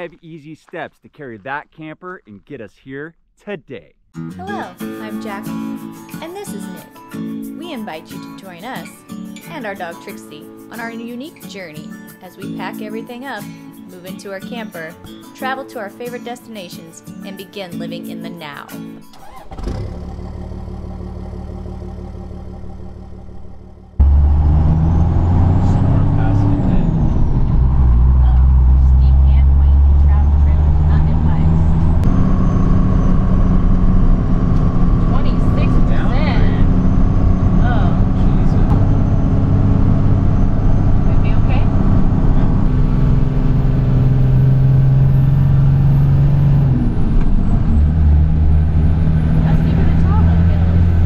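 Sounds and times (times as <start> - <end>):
diesel truck engine running: 19.2 - 51.0.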